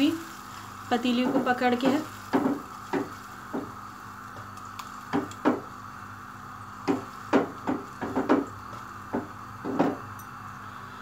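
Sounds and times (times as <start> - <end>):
curry sizzling: 0.0 - 11.0
pot knocking on burner grate: 2.3 - 3.8, 5.1 - 5.7, 6.8 - 10.1.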